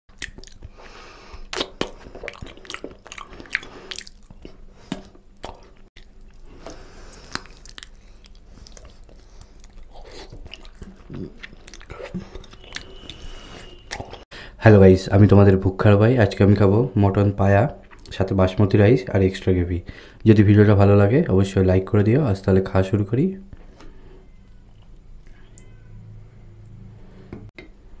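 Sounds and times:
close chewing with mouth smacks: 0.1s - 14.2s.

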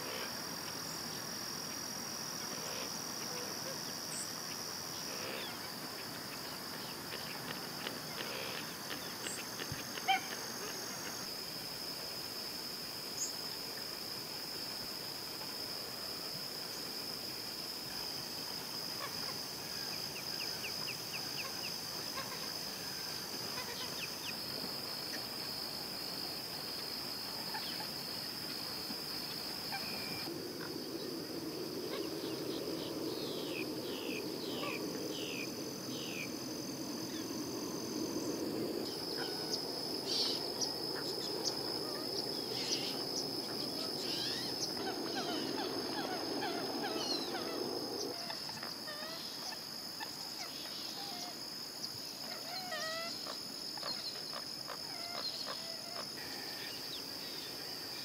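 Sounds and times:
high-pitched insect drone: 13.2s - 58.0s.

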